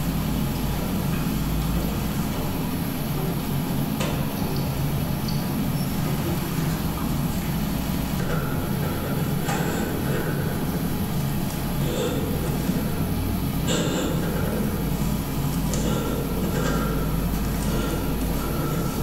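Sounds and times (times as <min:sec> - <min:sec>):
freezer humming: 0:00.0 - 0:19.0.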